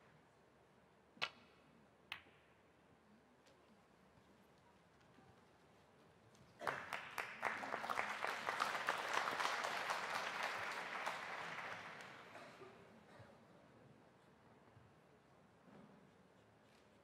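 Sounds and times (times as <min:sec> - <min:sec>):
audience applauding: 0:06.6 - 0:12.6.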